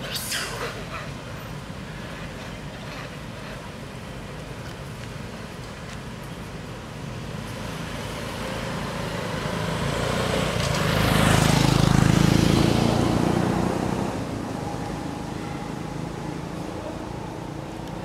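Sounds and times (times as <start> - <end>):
motor vehicle driving past: 7.4 - 17.8.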